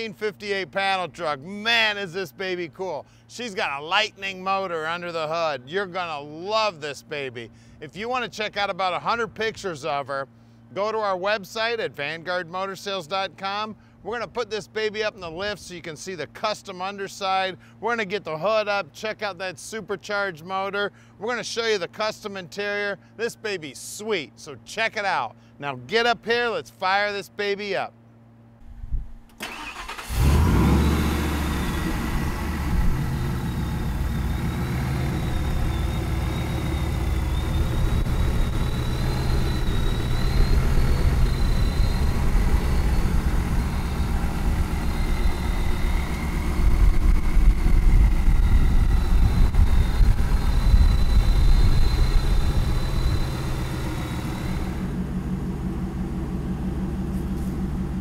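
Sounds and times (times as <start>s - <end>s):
supercharger whine: 28.2s - 58.0s
engine cranking: 29.3s - 58.0s
truck engine idling: 29.4s - 58.0s.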